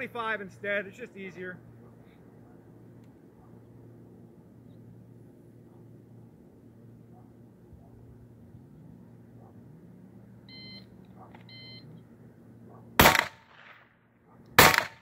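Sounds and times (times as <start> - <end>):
short electronic beeps: 10.5 - 10.9, 11.5 - 11.9
gunshots: 13.0 - 13.8, 14.6 - 15.0.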